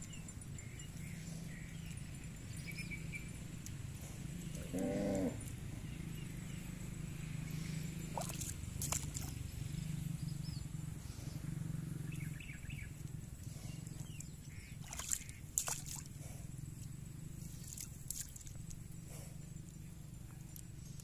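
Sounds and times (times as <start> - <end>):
low outdoor rumble: 0.0 - 21.0
water splashes and slaps: 8.1 - 9.4, 14.8 - 16.2, 17.4 - 18.7.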